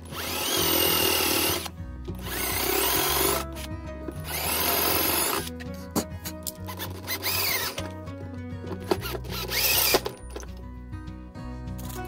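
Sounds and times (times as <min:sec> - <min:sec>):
cordless drill boring into wood: 0:00.0 - 0:05.5, 0:06.7 - 0:07.8, 0:08.8 - 0:10.2.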